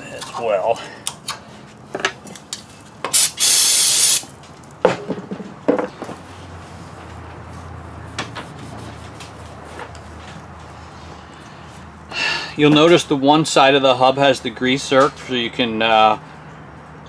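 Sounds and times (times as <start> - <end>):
aerosol spray burst: 3.1 - 4.3.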